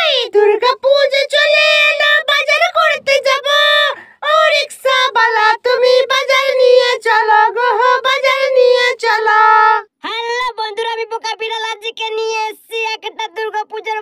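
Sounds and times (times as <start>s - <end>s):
high pitched cartoon voice singing: 8.5s - 14.0s.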